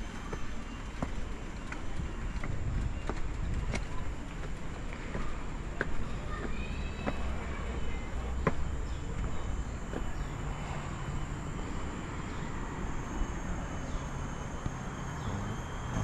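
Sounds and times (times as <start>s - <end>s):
steady low rumble: 0.0s - 16.0s
faint high insect drone: 7.5s - 16.0s.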